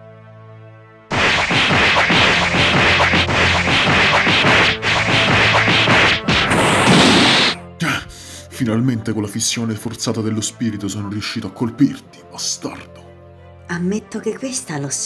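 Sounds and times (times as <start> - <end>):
cartoon punch sound effects: 1.1 - 7.6.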